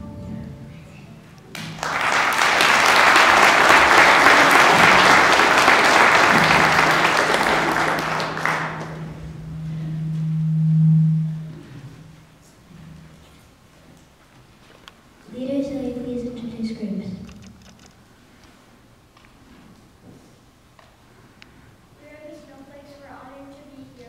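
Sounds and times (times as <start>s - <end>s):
congregation applauding: 1.5s - 9.3s
steady low hum: 3.6s - 24.0s.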